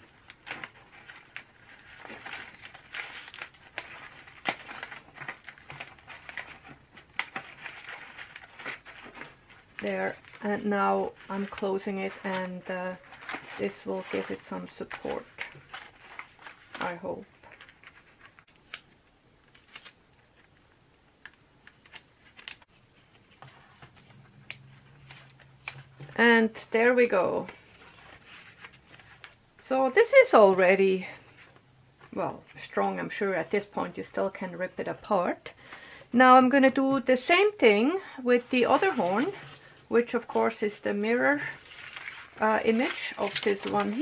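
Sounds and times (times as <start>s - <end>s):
heavy paper rustling: 0.0s - 18.8s, 37.6s - 44.0s
aluminium foil crinkling: 0.0s - 20.7s, 21.3s - 22.7s, 37.2s - 44.0s
masking tape crackling and tapping: 0.0s - 29.7s, 38.5s - 44.0s.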